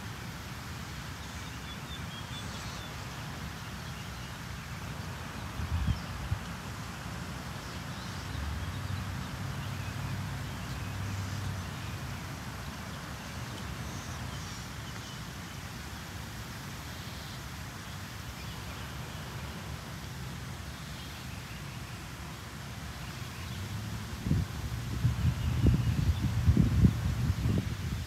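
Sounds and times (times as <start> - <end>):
wind buffeting microphone: 24.1 - 28.0.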